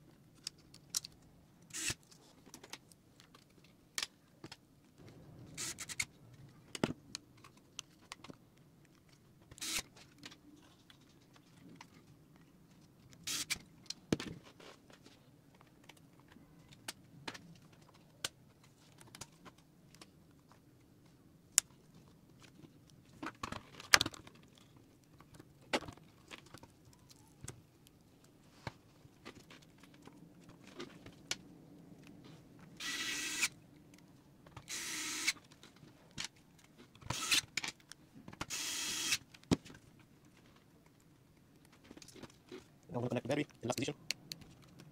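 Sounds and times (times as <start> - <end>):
electric screwdriver whirring: 1.7 - 2.0, 5.6 - 6.0, 9.6 - 9.8, 13.3 - 13.6, 32.8 - 33.5, 34.7 - 35.4, 37.1 - 37.4, 38.5 - 39.2.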